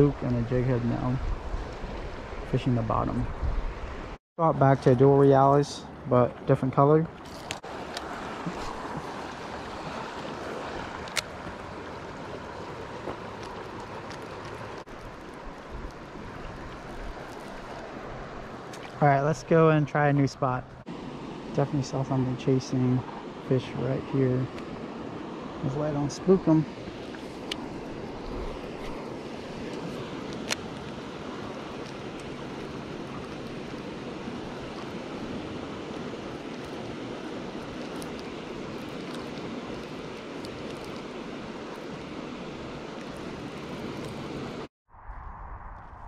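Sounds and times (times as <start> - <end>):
flowing water: 0.0 - 44.7
wind: 0.0 - 46.0
wind rushing: 44.9 - 46.0.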